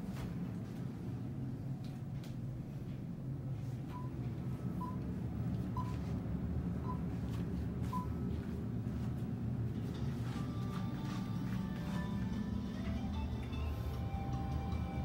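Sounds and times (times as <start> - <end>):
low machinery hum: 0.0 - 15.0
music: 9.8 - 15.0.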